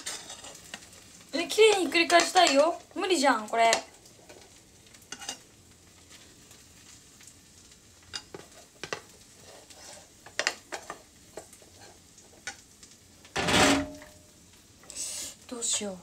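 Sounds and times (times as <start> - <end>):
pancake sizzling in pan: 0.0 - 16.0
utensil knocking and scraping pan: 13.4 - 14.1.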